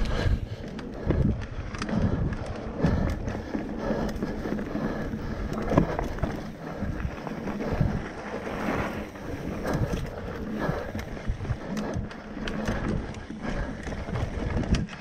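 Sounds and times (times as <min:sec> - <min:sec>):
bike knocking and rattling: 0:00.0 - 0:15.0
bike tyres rumbling on dirt: 0:00.0 - 0:15.0
wind buffeting microphone: 0:00.0 - 0:15.0.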